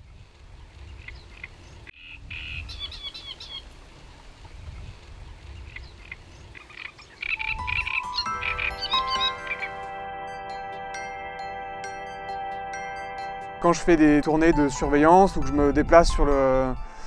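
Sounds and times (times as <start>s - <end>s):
low wind rumble: 0.0s - 8.0s
chirping animal calls: 0.8s - 3.7s, 4.7s - 9.8s
chime-like mallet music: 7.4s - 17.0s.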